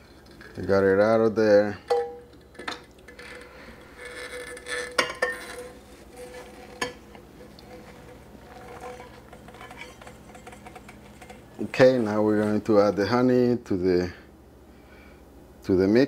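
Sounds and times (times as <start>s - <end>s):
utensil clinking on dishes: 1.9s - 3.2s, 4.6s - 5.8s
spatula scraping pot: 3.0s - 13.2s.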